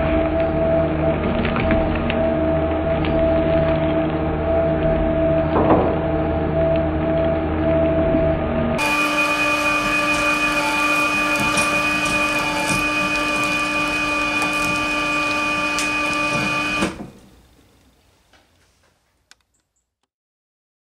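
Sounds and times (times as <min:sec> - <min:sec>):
shredder motor whine: 0:00.0 - 0:17.2
shredder cutters cracking: 0:08.8 - 0:17.2.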